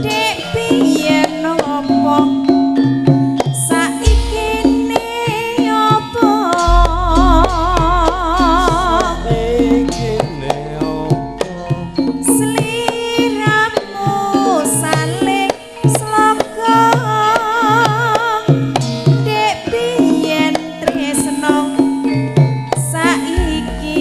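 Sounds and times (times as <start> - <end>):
metallophones and gongs ringing: 0.0 - 24.0
drum strokes: 3.2 - 16.6, 22.9 - 24.0
high wavering melody: 3.6 - 13.6, 23.0 - 24.0.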